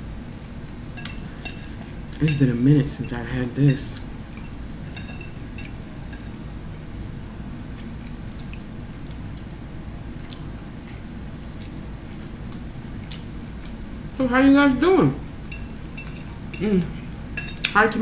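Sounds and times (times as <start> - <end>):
low room hum: 0.0 - 18.0
metal fork clinking on plate: 1.0 - 6.4, 15.5 - 16.6, 17.4 - 17.8.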